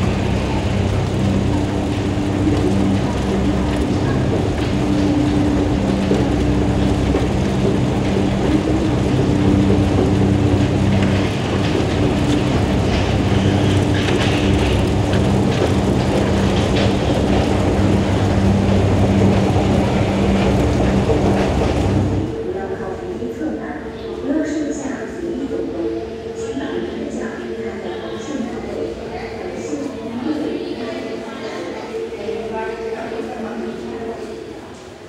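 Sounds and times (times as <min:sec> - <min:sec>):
escalator machine hum: 0:00.0 - 0:22.6
rumble of moving escalator steps: 0:00.0 - 0:35.0.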